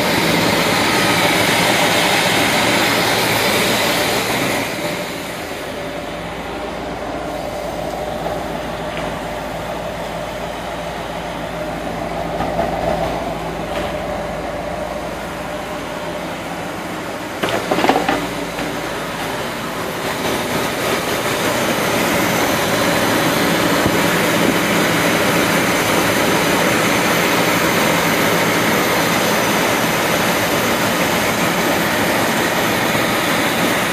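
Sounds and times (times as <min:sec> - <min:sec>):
car engine idling: 0:00.0 - 0:33.9
clatter of knocks: 0:17.4 - 0:18.7.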